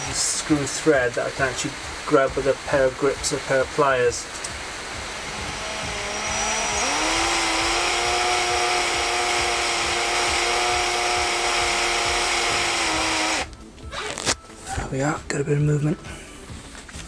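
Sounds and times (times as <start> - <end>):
power drill whining: 0.0 - 0.4, 4.3 - 14.4.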